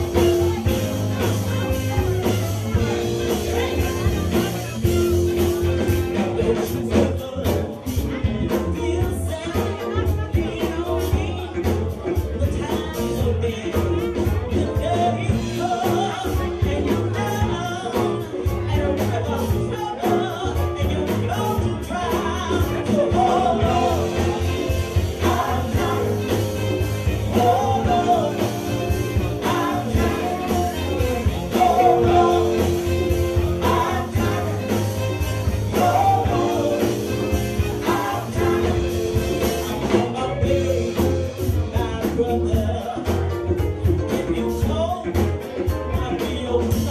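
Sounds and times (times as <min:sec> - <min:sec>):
steady drum beat with cymbals: 0:00.0 - 0:46.9.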